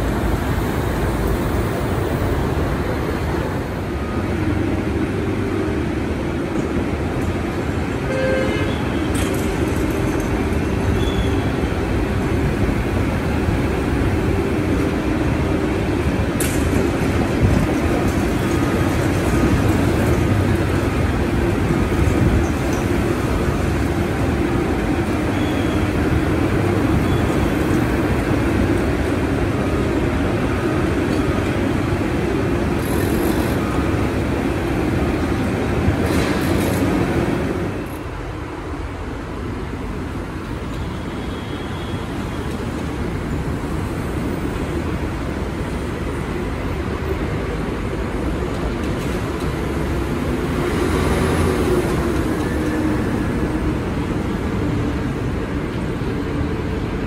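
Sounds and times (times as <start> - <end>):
construction machinery: 0.0 - 38.4
road traffic: 0.0 - 57.0.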